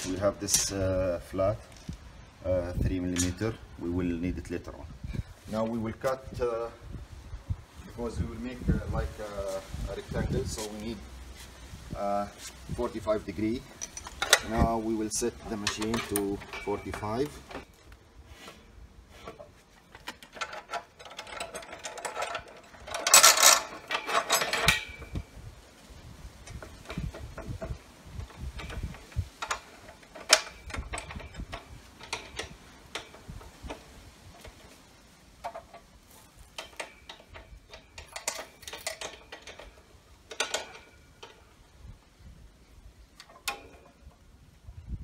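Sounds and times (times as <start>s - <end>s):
metal tube clicking and rattling: 19.2s - 25.3s, 26.4s - 41.6s
loud scraping rattles: 19.2s - 25.4s, 26.3s - 41.6s.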